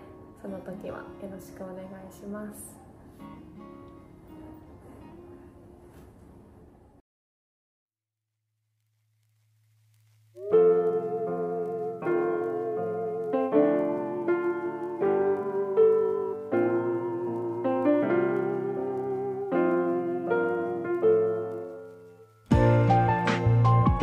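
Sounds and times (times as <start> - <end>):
soft piano chords: 10.4 - 24.0.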